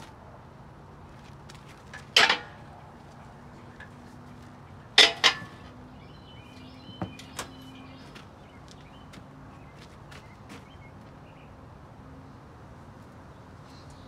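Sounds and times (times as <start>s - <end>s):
sharp metal clanks: 1.9s - 2.7s, 4.9s - 5.7s.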